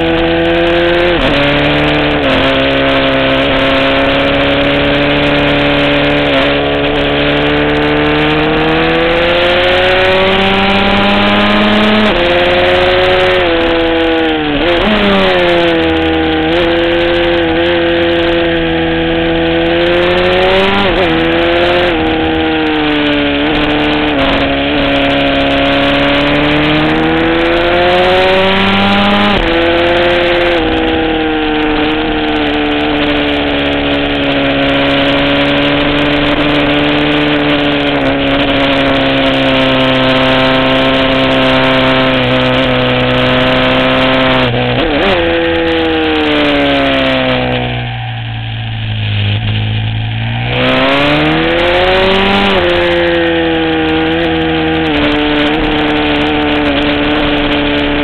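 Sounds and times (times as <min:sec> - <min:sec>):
motorcycle engine at racing revs: 0:00.0 - 0:58.0.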